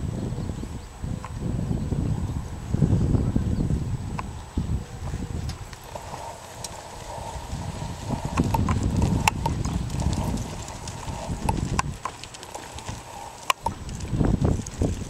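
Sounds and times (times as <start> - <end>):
horse hooves thudding on dirt: 4.1 - 15.0.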